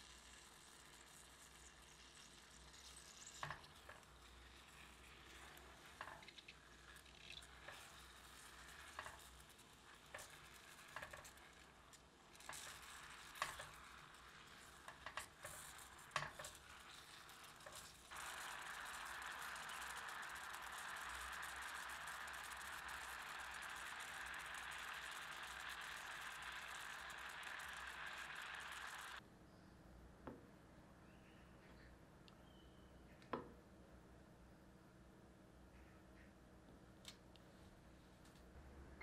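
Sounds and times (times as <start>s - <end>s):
faint sizzle in saucepan: 0.0s - 29.2s
fruit syrup boiling hiss: 0.0s - 29.2s
spatula tapping and scraping pan: 3.3s - 11.7s, 12.4s - 19.4s.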